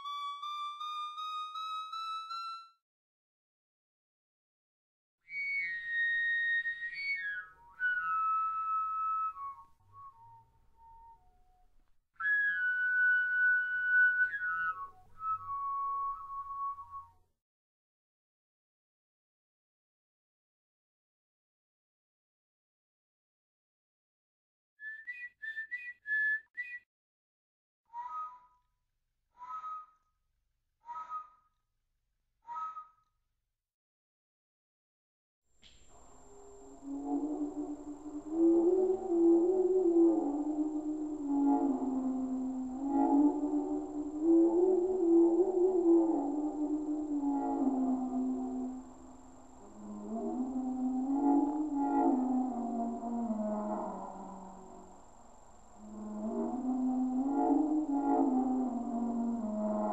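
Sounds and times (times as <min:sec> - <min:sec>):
corrugated tube whistling overtones: 0:05.2 - 0:11.6, 0:12.2 - 0:17.2, 0:24.8 - 0:26.9, 0:27.9 - 0:28.6, 0:29.4 - 0:30.2, 0:35.6 - 0:55.1, 0:55.8 - 0:59.9
person whistling with overtones: 0:05.3 - 0:11.2, 0:12.2 - 0:17.2, 0:24.8 - 0:26.9.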